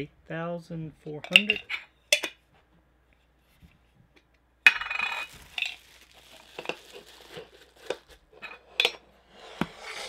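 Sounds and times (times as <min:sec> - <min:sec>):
plastic wrapping crinkling: 0:05.0 - 0:08.6.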